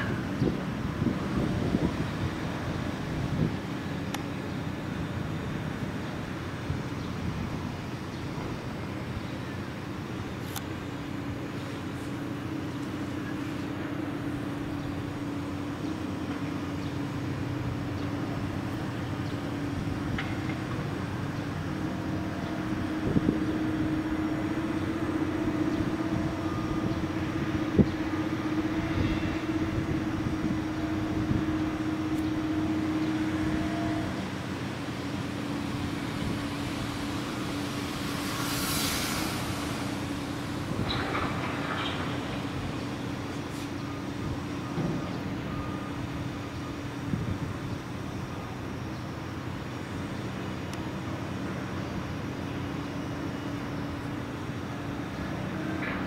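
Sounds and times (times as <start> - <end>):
heavy diesel machinery hum: 0.0 - 56.0
hissing swell: 20.8 - 43.9.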